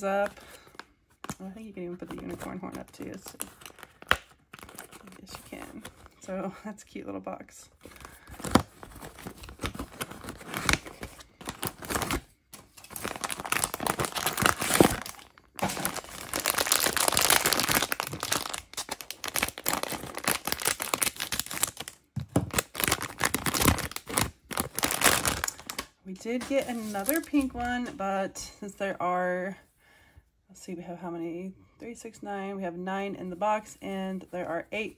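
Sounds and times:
foil bag crinkling: 7.8 - 27.8.

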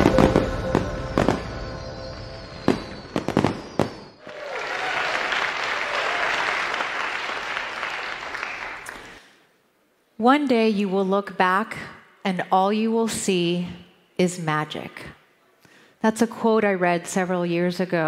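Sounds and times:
intro music: 0.0 - 3.3
firework bangs: 0.0 - 4.2
audience applause: 4.2 - 9.2.

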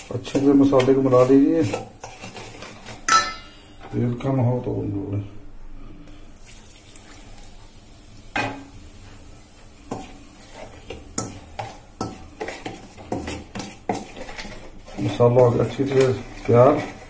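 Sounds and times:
spoon stirring and scraping a bowl: 0.0 - 3.9, 9.6 - 17.0
oil pouring into a bowl: 6.4 - 7.5.

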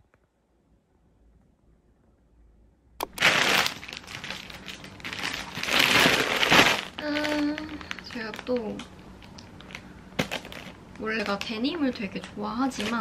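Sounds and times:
plastic bag crinkling: 3.0 - 13.0.

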